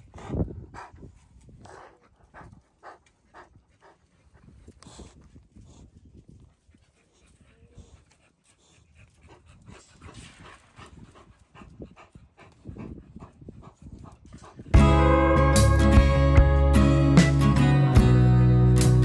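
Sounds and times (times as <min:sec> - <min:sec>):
dog panting: 0:00.0 - 0:14.8.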